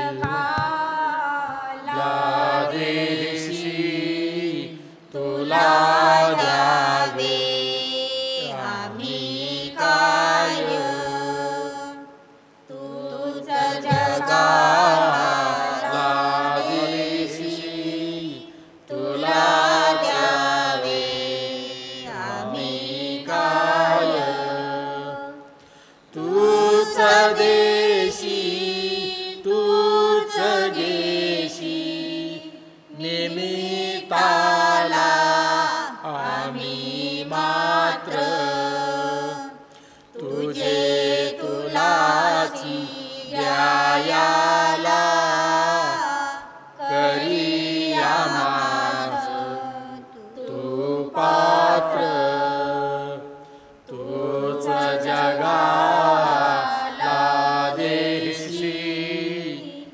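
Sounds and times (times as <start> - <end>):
person singing a hymn: 0.0 - 59.9
singer breathing: 25.6 - 26.1, 39.6 - 40.2, 53.4 - 53.8.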